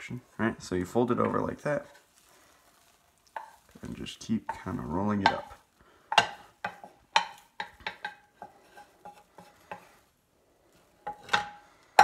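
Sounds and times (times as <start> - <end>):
spatula clicking on frying pan: 6.1 - 9.9.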